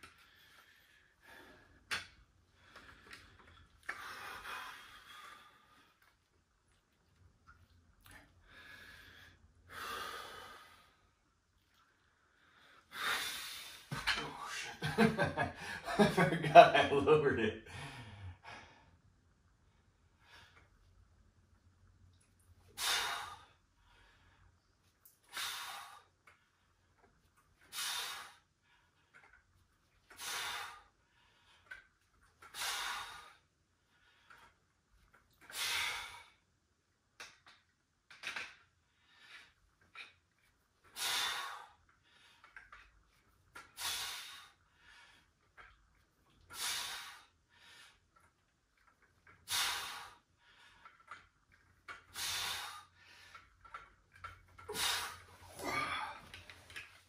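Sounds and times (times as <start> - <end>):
faint breathing: 2.5 - 6.2, 8.1 - 11.3, 17.6 - 19.1, 43.7 - 45.7, 46.5 - 48.2, 49.5 - 51.3, 52.0 - 53.9, 54.6 - 57.0
man exhaling hard: 54.7 - 56.2.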